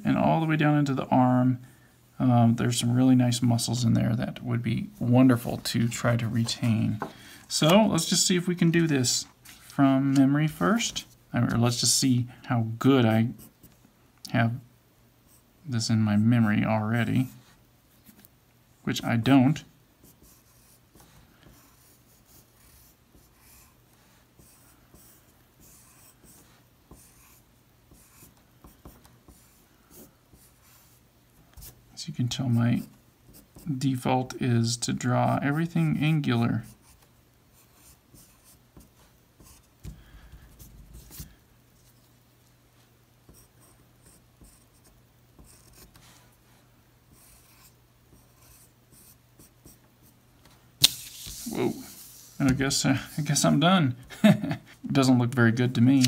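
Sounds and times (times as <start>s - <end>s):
pencil scratching on paper: 20.0s - 31.0s, 36.6s - 39.8s, 43.3s - 46.1s, 47.1s - 50.2s.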